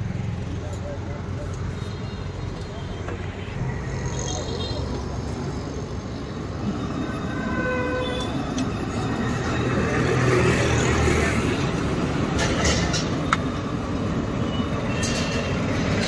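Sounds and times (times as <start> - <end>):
street traffic rumble: 0.0 - 16.0.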